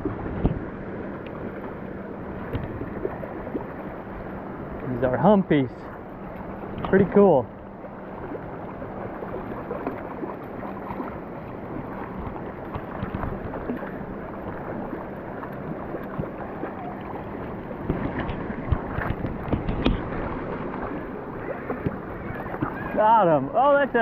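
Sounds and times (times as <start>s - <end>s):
wind buffeting microphone: 0.0s - 0.9s, 8.1s - 24.0s
person wading splashing: 7.8s - 24.0s
creek water rushing over gravel: 8.8s - 24.0s.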